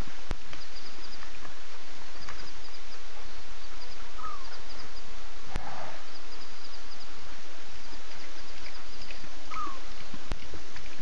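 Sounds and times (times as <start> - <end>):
steady hiss: 0.0 - 11.0
faint high-pitched chirps: 2.1 - 10.9.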